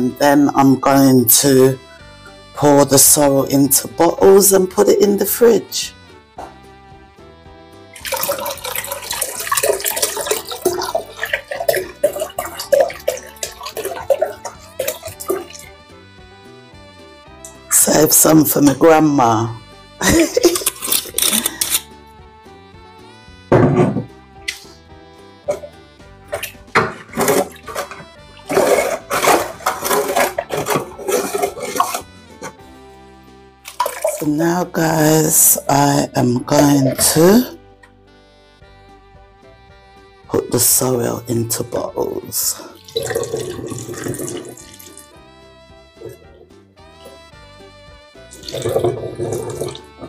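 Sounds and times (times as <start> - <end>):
background music: 0.0 - 50.0
liquid sloshing in a stockpot: 8.0 - 15.8, 26.4 - 32.6, 33.7 - 34.5, 42.7 - 45.1
syrup pouring and gurgling: 8.0 - 15.8, 26.4 - 32.7, 33.7 - 34.3, 42.7 - 45.1, 48.4 - 50.0.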